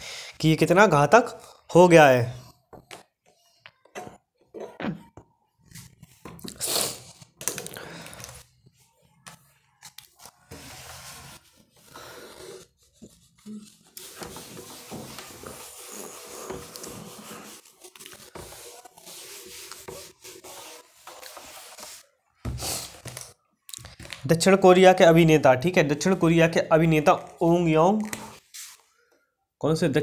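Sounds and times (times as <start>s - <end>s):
duster scrubbing a whiteboard: 10.5s - 22.8s.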